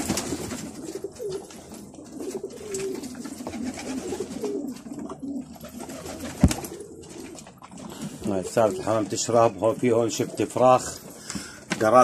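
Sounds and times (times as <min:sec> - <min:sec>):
pigeons cooing: 0:00.0 - 0:11.7.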